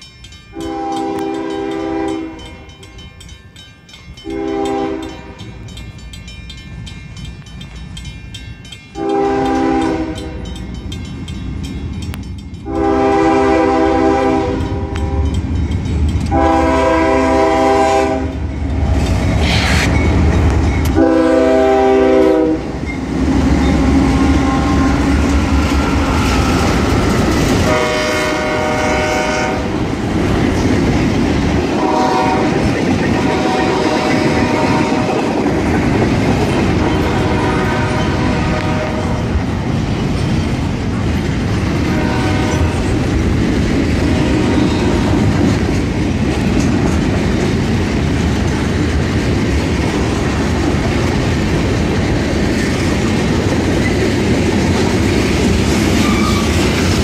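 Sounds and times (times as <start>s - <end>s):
train wheels clickety-clack: 0.0s - 57.0s
train horn blasts: 0.5s - 2.6s, 4.2s - 5.5s, 9.0s - 10.6s, 12.6s - 15.4s, 16.3s - 18.5s, 20.9s - 22.8s, 23.4s - 25.3s, 27.6s - 29.8s, 31.8s - 35.4s, 36.8s - 39.3s, 41.8s - 43.0s, 44.0s - 45.4s
diesel locomotive rumble: 0.6s - 57.0s.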